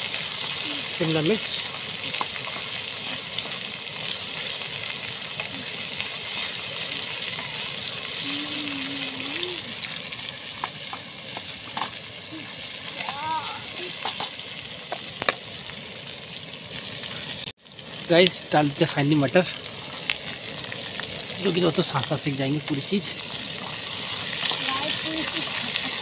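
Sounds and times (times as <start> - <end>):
vegetables sizzling in hot oil: 0.0 - 26.0
wooden spatula knocking a pan: 14.0 - 15.0.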